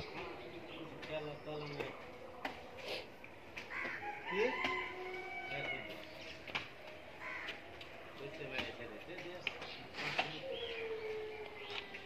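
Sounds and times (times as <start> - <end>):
rooster crowing: 3.8 - 6.0.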